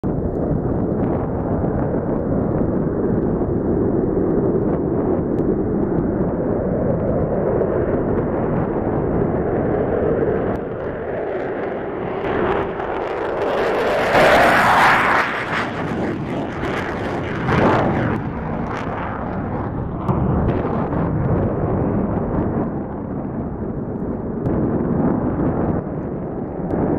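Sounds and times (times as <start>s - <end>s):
fighter jet taking off: 0.3s - 26.9s.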